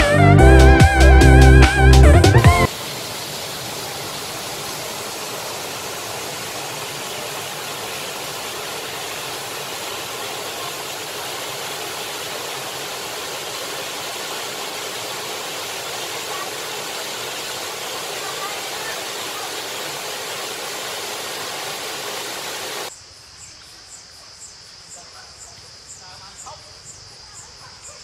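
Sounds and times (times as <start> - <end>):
waterfall rushing: 1.1 - 22.9.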